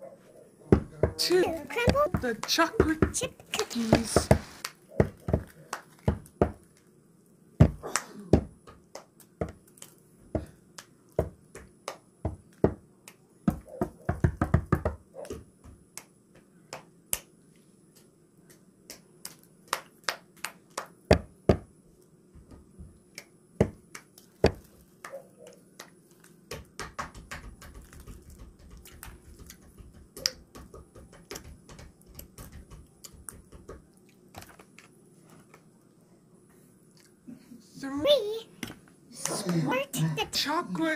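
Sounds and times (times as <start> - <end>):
cookies snapping and crumbling: 25.8 - 35.7.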